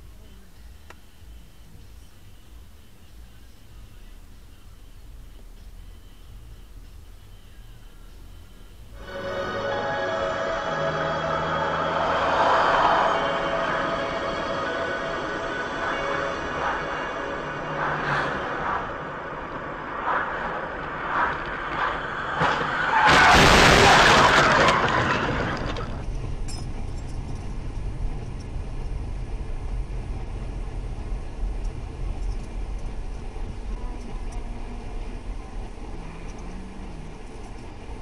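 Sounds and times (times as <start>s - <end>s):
car engine and tyre rumble: 0.0s - 9.2s, 11.2s - 38.0s
loud burst of noise: 8.4s - 26.1s.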